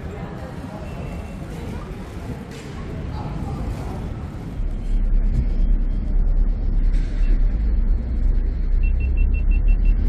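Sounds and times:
ferry engines rumbling: 0.0s - 10.0s
short high beeps: 8.8s - 10.0s.

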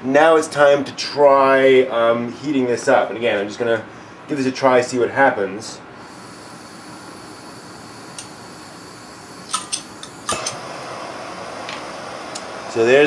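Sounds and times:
gas hissing: 6.0s - 13.0s
torch flame rushing: 6.0s - 13.0s.

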